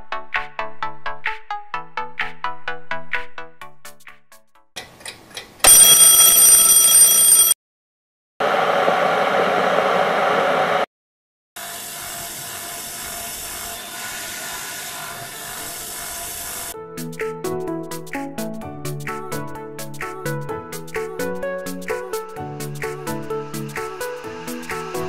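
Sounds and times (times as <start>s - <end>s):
high alarm tones: 5.7s - 7.6s
electric kettle boiling: 8.4s - 10.8s.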